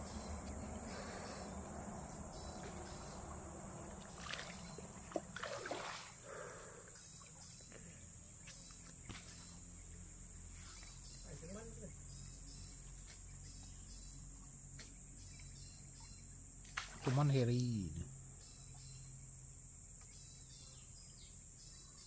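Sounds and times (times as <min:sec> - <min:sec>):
faint chirps: 0:00.0 - 0:22.0
insects droning: 0:00.0 - 0:22.0
water splashing: 0:02.6 - 0:07.0, 0:16.8 - 0:17.4.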